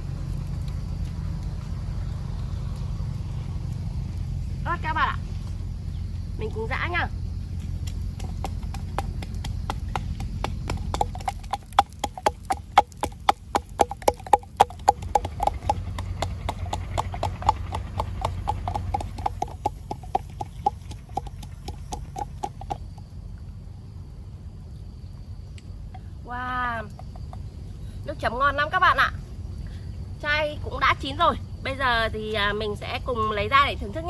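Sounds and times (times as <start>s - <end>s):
pestle pounding in a mortar: 8.2s - 23.0s.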